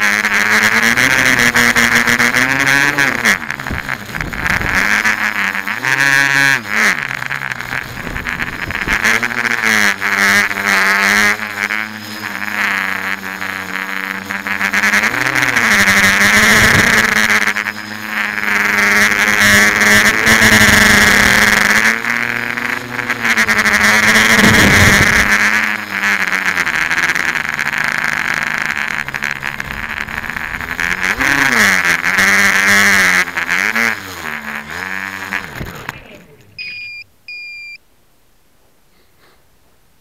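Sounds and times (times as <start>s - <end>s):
drone motors and propellers whirring: 0.0s - 37.8s
short high beeps: 36.6s - 37.8s.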